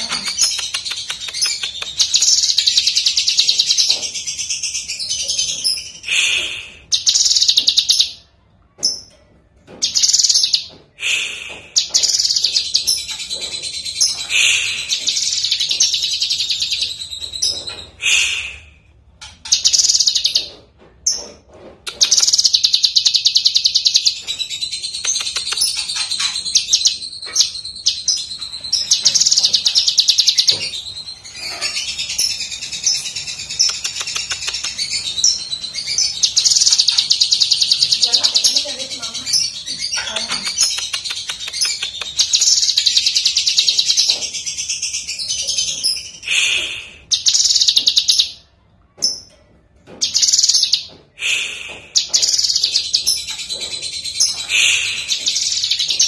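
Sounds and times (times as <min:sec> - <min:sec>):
bird singing rapid trills: 0:06.9 - 0:08.2, 0:19.5 - 0:20.5, 0:22.0 - 0:48.4.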